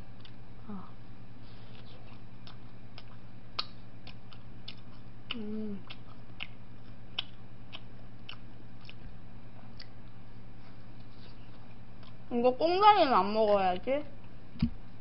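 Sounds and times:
chewing crunchy food: 0.0s - 0.5s, 1.5s - 12.3s
steady low hum: 0.0s - 15.0s
person humming: 5.3s - 6.0s.

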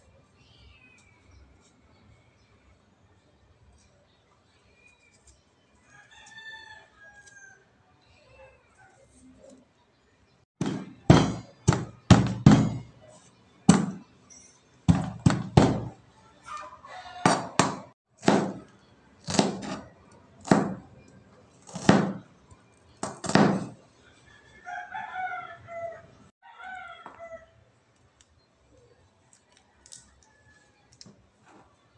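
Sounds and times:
knife chopping on plastic board: 10.6s - 12.9s, 13.7s - 14.0s, 14.9s - 15.9s, 17.3s - 20.9s, 21.7s - 22.2s, 23.0s - 23.7s.

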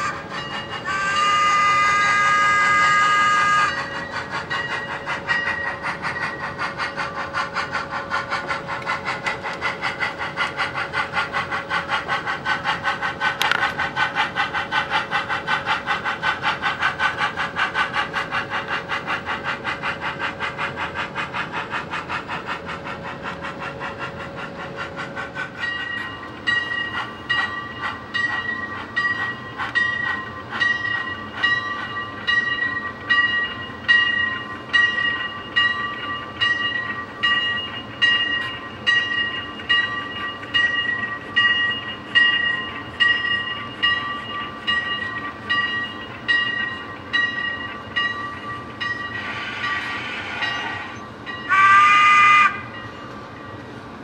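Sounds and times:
locomotive bell ringing: 0.0s - 8.5s, 25.6s - 53.6s
model locomotive exhaust chuffs: 0.0s - 53.7s.

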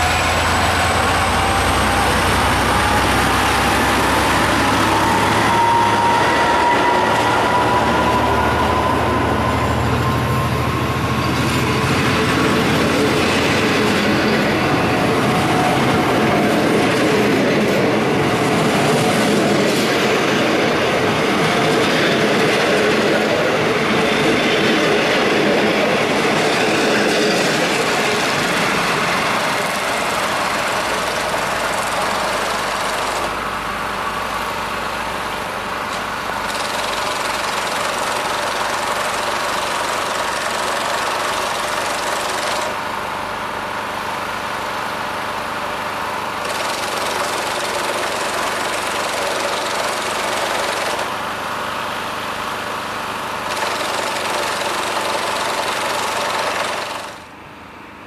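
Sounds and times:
train wheels clattering on rails: 0.0s - 33.4s, 35.9s - 42.9s, 46.4s - 51.2s, 53.5s - 57.3s
train engine hum: 0.0s - 58.0s.

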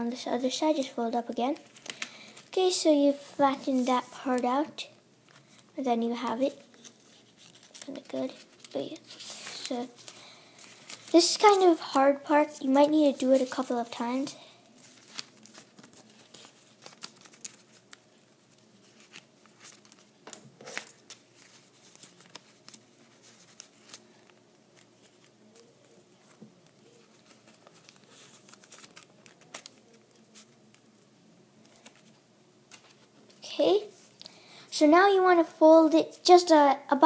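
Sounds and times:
paper rustling and crinkling: 0.5s - 4.6s, 6.3s - 31.0s, 31.6s - 34.2s
crisp paper ticks: 14.9s - 31.0s.

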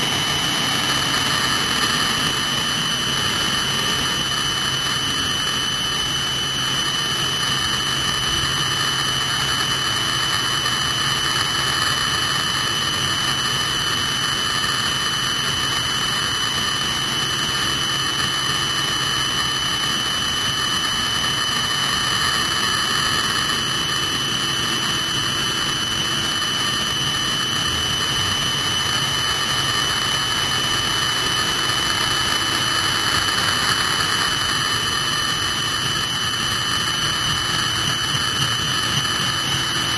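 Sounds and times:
rushing engine noise: 0.0s - 6.5s
helicopter turbine whine: 0.0s - 39.9s.

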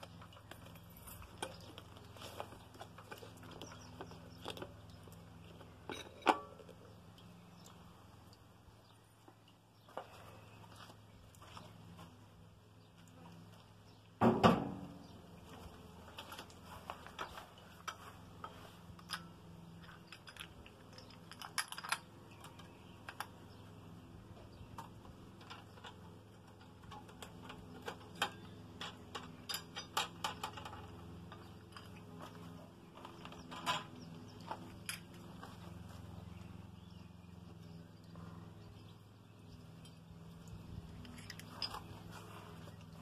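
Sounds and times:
light clicks and rattles: 15.5s - 23.6s, 39.8s - 43.0s.

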